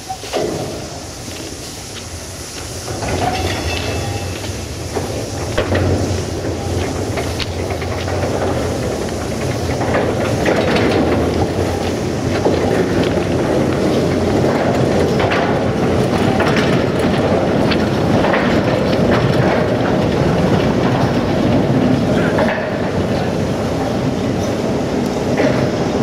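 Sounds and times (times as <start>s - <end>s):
train wagons rumbling past: 0.0s - 26.0s
wheels clanking over rail joints: 0.0s - 26.0s.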